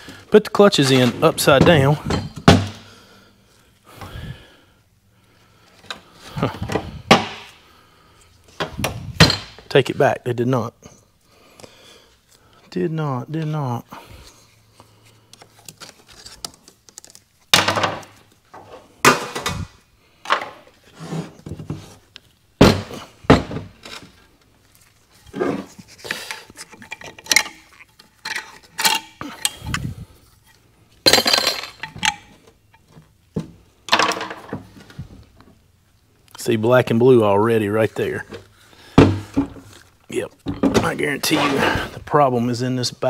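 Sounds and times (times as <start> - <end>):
metal parts clinking and clanking: 26.0 - 32.9.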